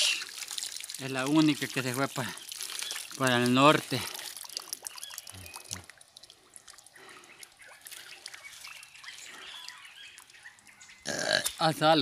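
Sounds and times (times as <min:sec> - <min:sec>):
faint water drips: 0:00.0 - 0:12.0
faint bird chirps: 0:04.4 - 0:05.9, 0:06.8 - 0:11.9.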